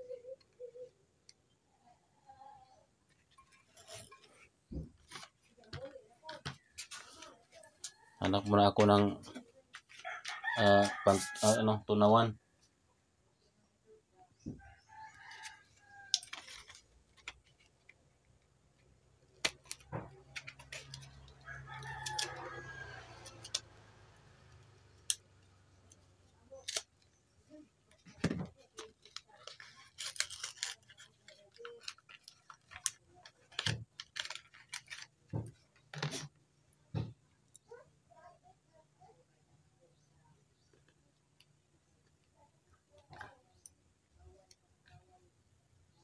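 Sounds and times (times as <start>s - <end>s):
small items knocking on wooden bench: 28.0s - 29.0s.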